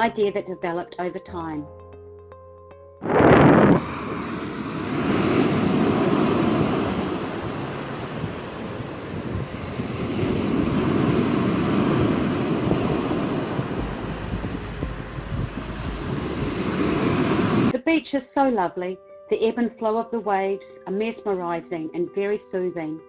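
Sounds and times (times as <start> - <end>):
ocean surf breaking: 3.0 - 17.7
wind buffeting microphone: 3.0 - 17.7.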